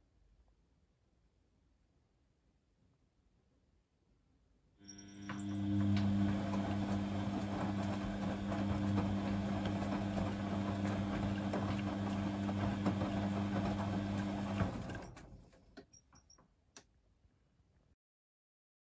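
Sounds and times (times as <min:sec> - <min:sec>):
washing machine motor humming: 0:04.8 - 0:15.4
laundry sloshing and tumbling: 0:05.8 - 0:15.4.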